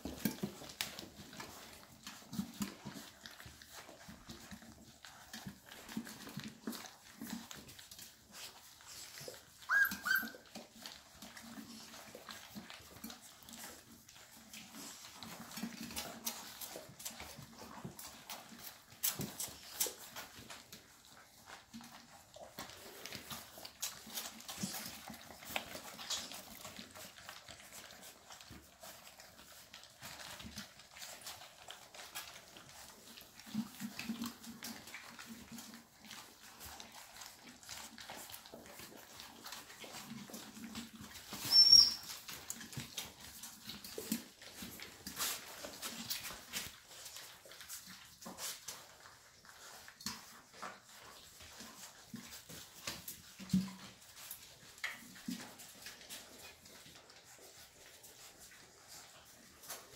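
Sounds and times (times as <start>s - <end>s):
puppies lapping and chewing: 0.0s - 59.9s
short high squeak: 41.5s - 42.0s.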